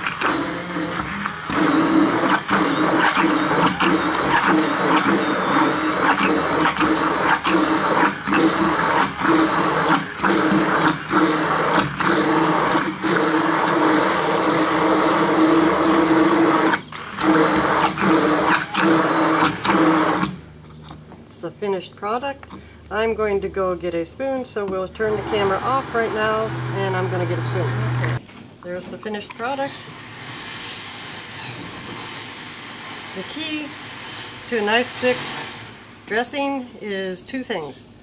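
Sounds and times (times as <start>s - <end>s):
hand blender motor whine: 0.0s - 20.4s, 25.0s - 28.2s.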